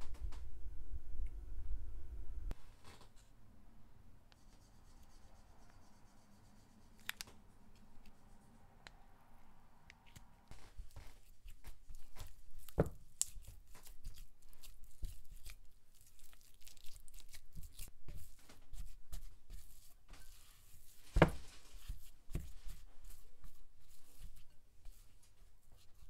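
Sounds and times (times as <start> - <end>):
spatula scraping sticky paste: 10.9 - 25.1.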